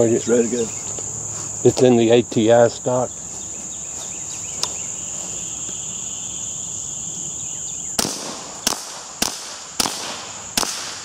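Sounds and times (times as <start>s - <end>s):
high insect drone: 0.0s - 11.0s
suppressed rifle shots: 8.0s - 11.0s.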